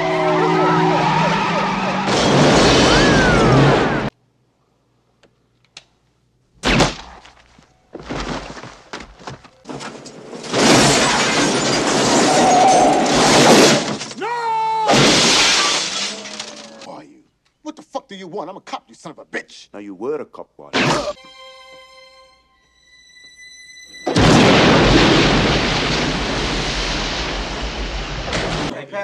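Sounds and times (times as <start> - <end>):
loud crash: 1.8 - 4.1, 10.1 - 14.1, 14.9 - 16.5, 24.0 - 28.7
crashing and breaking: 1.9 - 4.1, 6.7 - 14.2, 14.9 - 16.9, 24.1 - 28.7.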